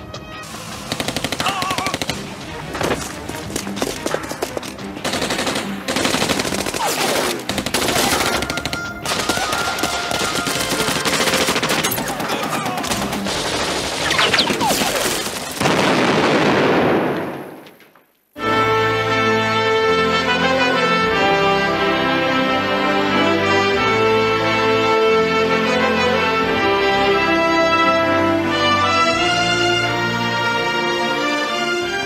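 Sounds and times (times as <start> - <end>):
machine-gun fire sound effect: 0.8 - 2.3.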